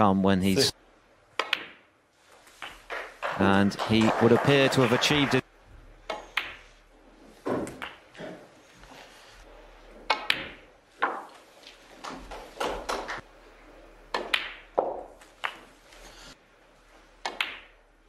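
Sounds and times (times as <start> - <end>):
snooker balls clacking: 1.4 - 1.9, 2.5 - 4.8, 7.5 - 8.5, 10.0 - 11.4, 12.0 - 13.2, 14.1 - 15.8, 17.2 - 17.8.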